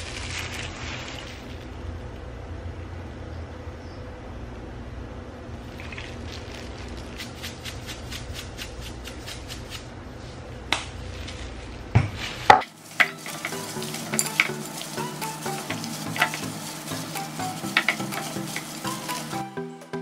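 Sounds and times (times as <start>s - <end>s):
salt shaker rattling: 5.6s - 9.9s, 11.1s - 19.6s
background music: 12.6s - 20.0s.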